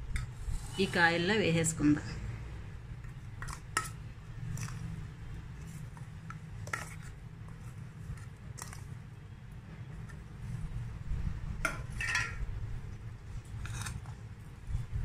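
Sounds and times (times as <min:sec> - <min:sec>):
spoon scraping steel: 0:13.5 - 0:14.1.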